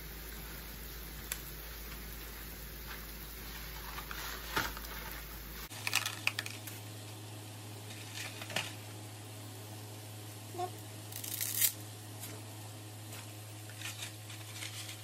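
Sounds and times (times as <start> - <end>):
steady hiss: 0.0 - 5.7.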